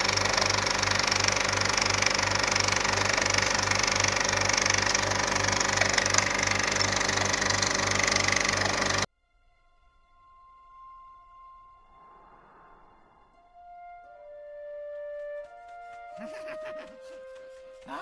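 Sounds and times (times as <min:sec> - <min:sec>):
film projector whirring: 0:00.0 - 0:09.1.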